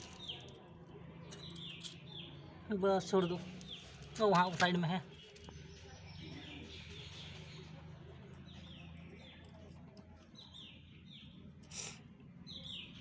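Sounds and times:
birds chirping faintly: 0.0 - 13.0.

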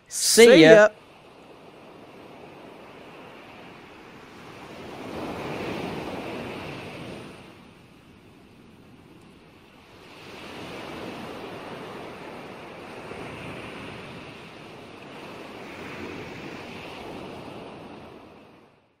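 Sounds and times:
ocean waves washing: 0.0 - 7.0.

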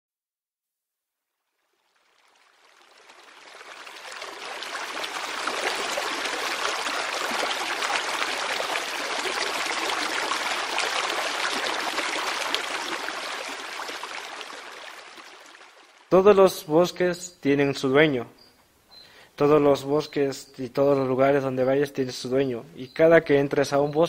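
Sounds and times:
stream water rushing: 2.0 - 16.2.

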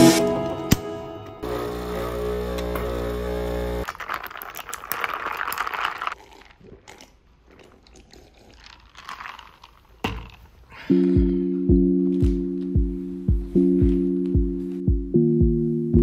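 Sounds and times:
espresso pouring from coffee machine: 1.4 - 6.2
faint crackles and clicks: 3.8 - 6.2
ice cracking: 3.8 - 6.6, 8.6 - 10.4.

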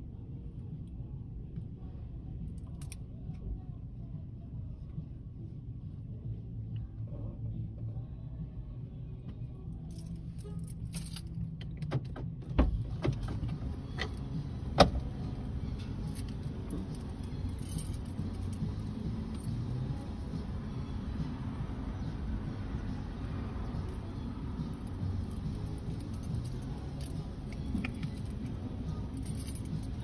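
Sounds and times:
steady low rumble: 0.0 - 30.0
keys jingling: 9.9 - 11.8, 15.0 - 20.0, 23.8 - 30.0
objects clicking and knocking: 26.1 - 28.5.

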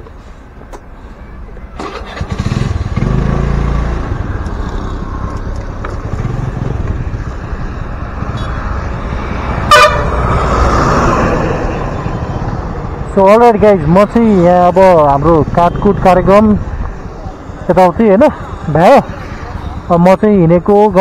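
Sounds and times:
short car horn toot: 9.7 - 10.1.

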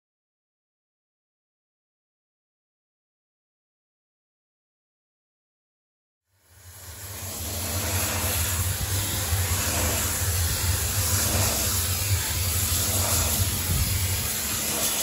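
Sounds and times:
steam cleaner hissing: 6.3 - 15.0.

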